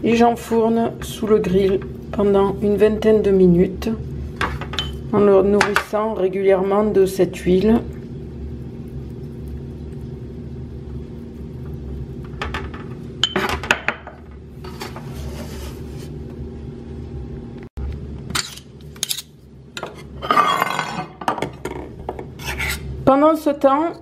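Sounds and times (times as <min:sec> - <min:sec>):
steady low hum: 0:00.0 - 0:24.0
kitchenware clinking: 0:04.4 - 0:05.0, 0:12.4 - 0:14.9, 0:18.3 - 0:22.0.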